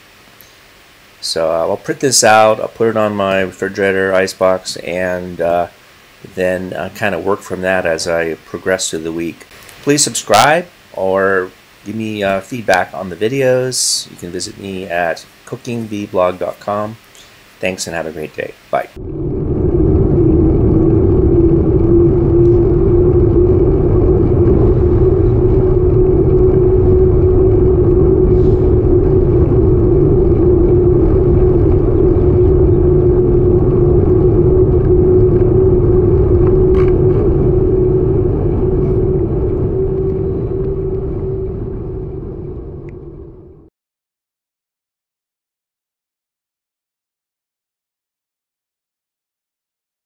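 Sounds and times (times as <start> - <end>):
wind rushing over microphone: 1.2 - 15.2, 18.9 - 43.7
bicycle tyres on asphalt: 19.0 - 43.5.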